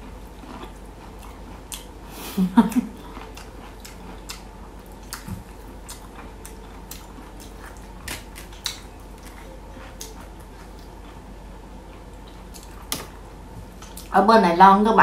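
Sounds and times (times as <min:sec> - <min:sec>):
chewing with crisp clicks: 0:00.3 - 0:01.9, 0:02.7 - 0:11.2, 0:11.9 - 0:13.0, 0:13.8 - 0:14.1.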